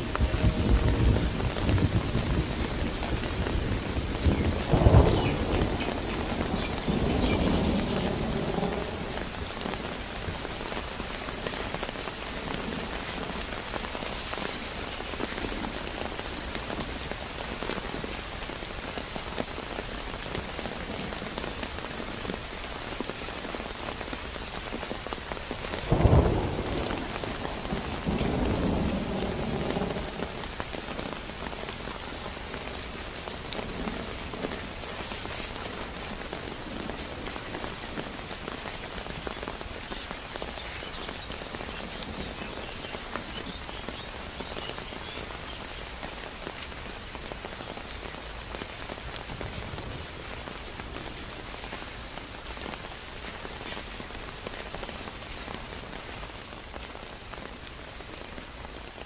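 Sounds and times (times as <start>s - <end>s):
thunder rumbling: 0.0s - 14.0s, 25.8s - 44.0s
steady rain falling: 0.0s - 59.0s.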